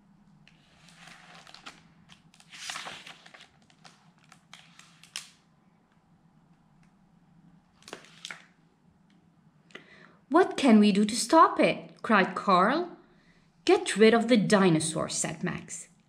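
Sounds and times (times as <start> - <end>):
paper rustling: 0.5 - 5.4, 7.8 - 8.5.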